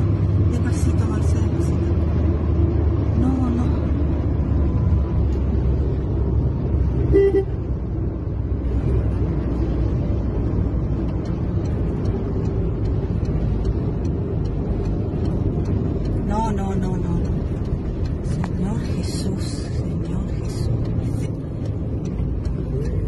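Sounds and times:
car driving rumble from inside: 0.0 - 23.0
car horn toot: 7.1 - 7.7.

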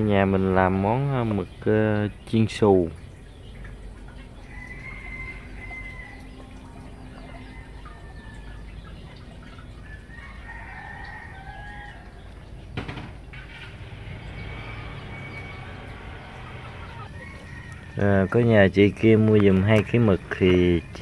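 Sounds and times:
chickens clucking: 0.3 - 21.0
rooster crowing: 4.4 - 6.6, 10.0 - 12.2, 14.3 - 18.4.

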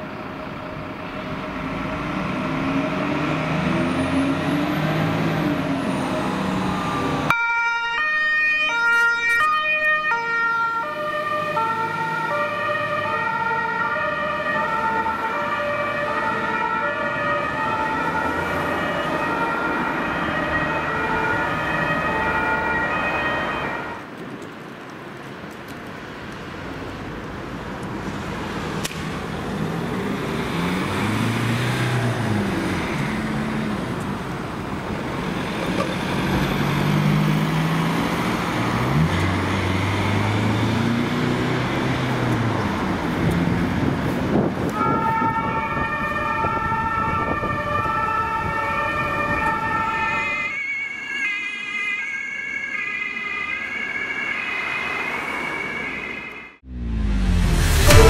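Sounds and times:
ambulance engine accelerating: 0.0 - 24.2, 27.6 - 58.0
traffic noise: 0.0 - 58.0
two-tone emergency siren: 0.1 - 24.1, 44.6 - 58.0.

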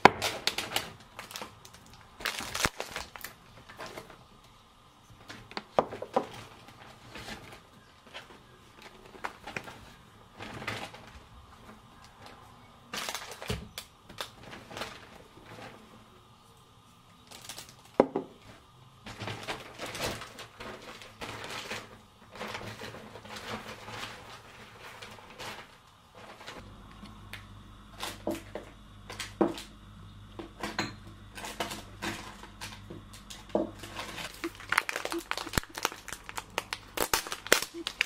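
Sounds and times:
bag and packaging rustling: 0.0 - 4.4, 18.6 - 26.7, 31.4 - 38.0
low steady hum: 0.0 - 38.0
items knocking on counter: 18.0 - 18.4.

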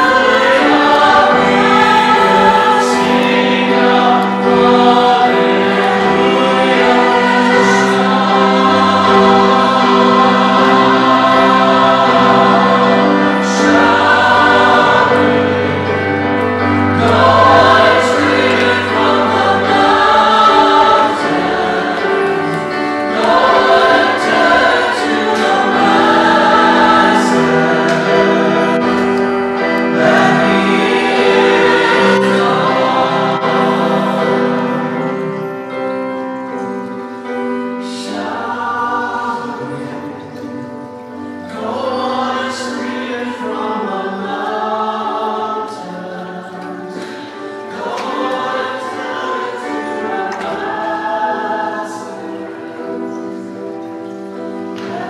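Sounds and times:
choir singing: 0.0 - 55.0
held accompanying notes: 0.0 - 55.0.

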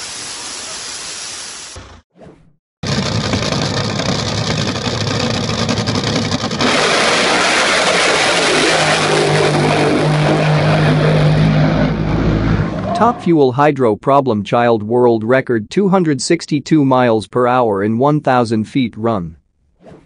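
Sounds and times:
drag boat engine at full throttle: 2.8 - 13.2.

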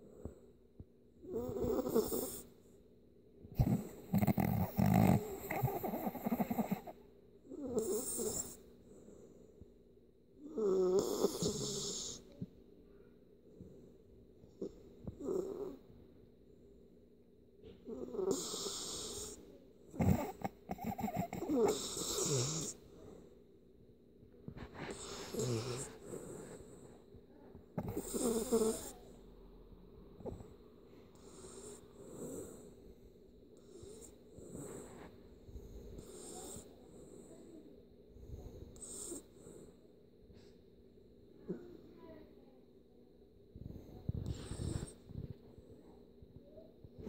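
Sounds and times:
dog snoring: 1.2 - 2.5, 3.5 - 8.6, 10.4 - 12.3, 14.6 - 15.8, 17.9 - 23.2, 24.5 - 27.0, 27.8 - 29.1, 31.1 - 32.7, 33.6 - 37.4, 38.7 - 39.6, 43.7 - 45.3.

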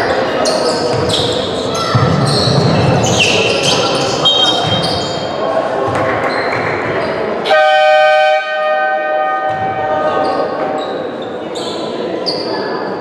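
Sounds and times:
voices: 0.0 - 13.0
ball bouncing on court: 0.9 - 3.8, 4.5 - 5.0, 5.8 - 7.0, 9.4 - 10.1.

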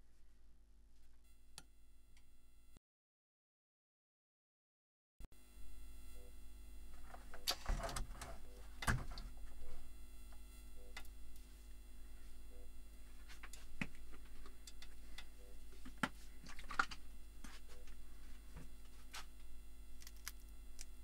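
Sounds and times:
low steady hum: 5.4 - 21.0
small clicks and ticks: 20.0 - 21.0.

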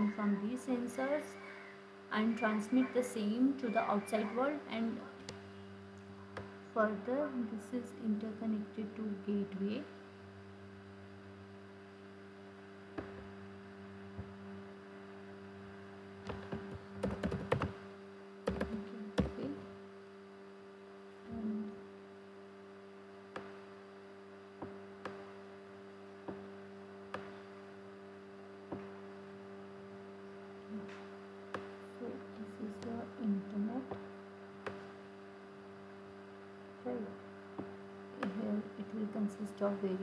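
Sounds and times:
steady electrical hum: 0.0 - 40.0
computer keyboard typing: 16.3 - 17.8, 18.5 - 19.4.

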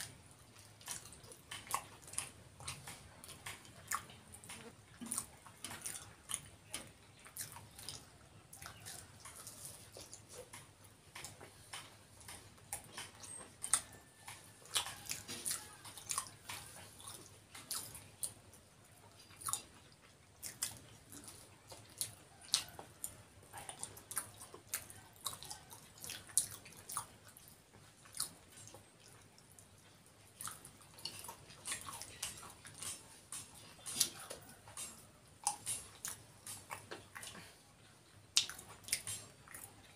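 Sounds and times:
people chewing food: 0.0 - 39.9
mouth clicks and smacks: 38.3 - 39.9.

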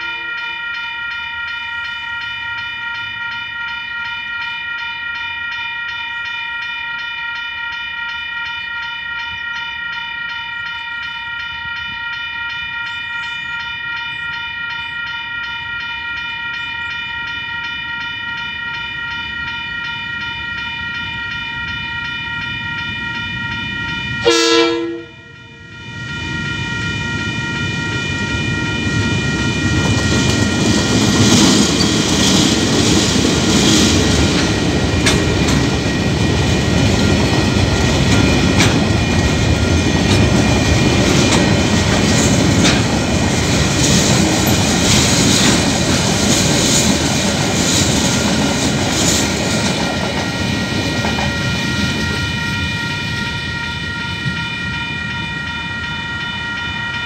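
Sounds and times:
level crossing bells ringing: 0.0 - 57.0
diesel locomotives passing: 7.7 - 57.0
train horn blast: 24.2 - 25.4.

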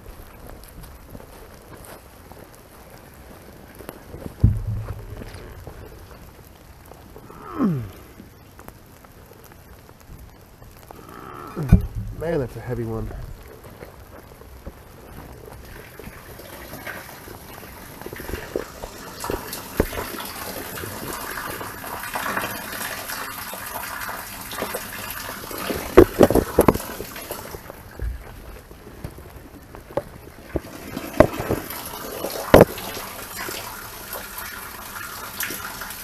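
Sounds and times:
rainwater gushing through drain: 0.0 - 36.0
sharp knocks: 4.4 - 5.7.

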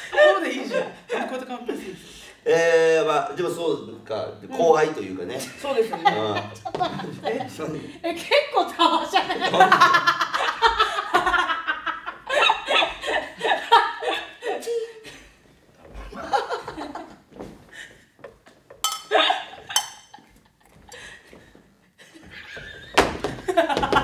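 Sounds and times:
adults laughing hard: 5.9 - 7.8, 9.0 - 14.6, 16.0 - 17.2, 22.0 - 24.0.

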